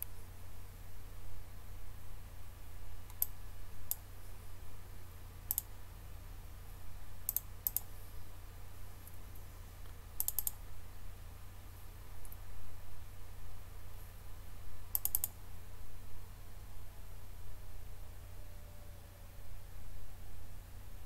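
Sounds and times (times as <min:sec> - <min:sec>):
steady low hum: 0:00.0 - 0:21.0
computer mouse clicking: 0:03.1 - 0:04.0, 0:05.5 - 0:05.7, 0:07.3 - 0:07.9, 0:09.0 - 0:10.6, 0:14.9 - 0:15.4.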